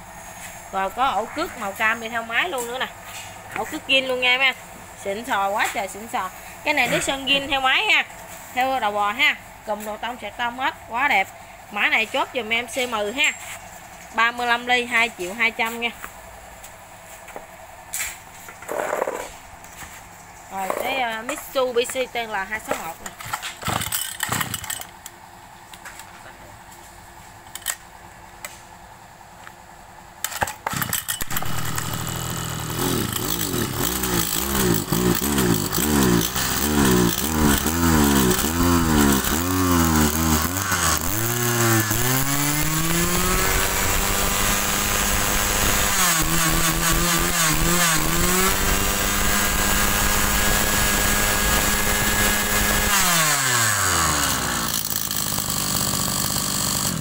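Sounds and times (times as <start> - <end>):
brush cutter engine running: 0.3 - 8.8, 20.5 - 25.2, 30.2 - 57.0
brush cutter pull start: 20.6 - 25.2, 27.5 - 27.8, 30.2 - 57.0.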